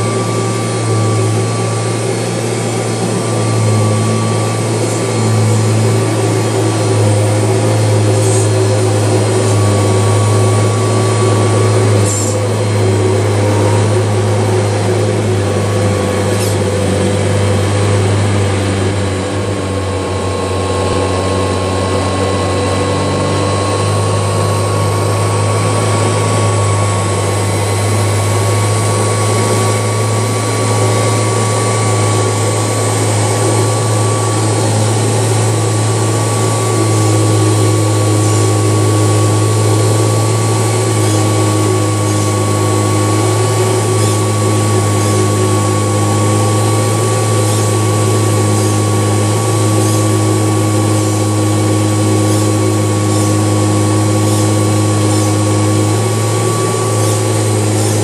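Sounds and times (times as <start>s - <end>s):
vacuum cleaner running on carpet: 0.0s - 58.0s.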